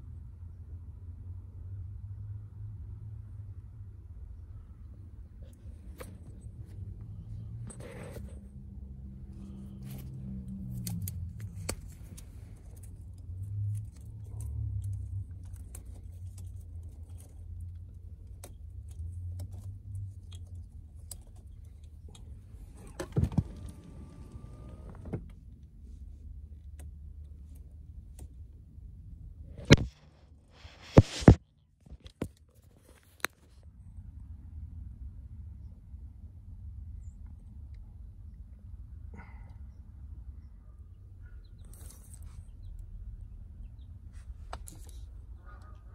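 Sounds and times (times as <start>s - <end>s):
hands working car wiring and trim: 5.3s - 28.6s, 29.5s - 33.6s, 44.1s - 45.8s.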